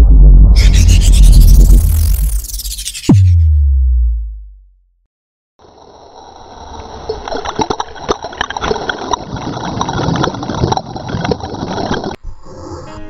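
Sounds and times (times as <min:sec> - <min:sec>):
churning water underwater: 0:05.6 - 0:12.2.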